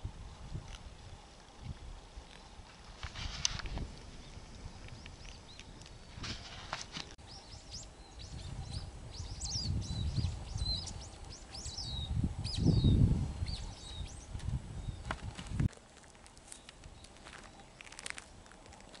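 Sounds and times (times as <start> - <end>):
small songbirds chirping: 4.0 - 15.7, 16.3 - 19.0.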